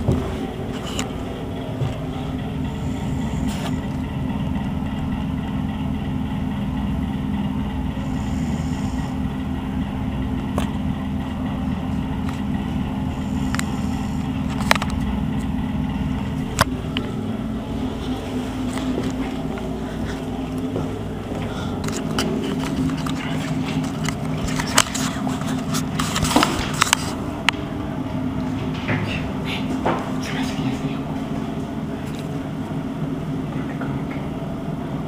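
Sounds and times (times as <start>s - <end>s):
low machine hum: 0.0s - 35.0s.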